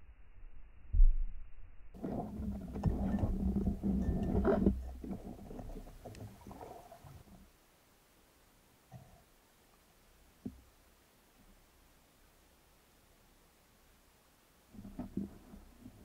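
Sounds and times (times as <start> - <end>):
low hum: 0.0 - 7.5
rushing bubbling water: 2.0 - 7.3.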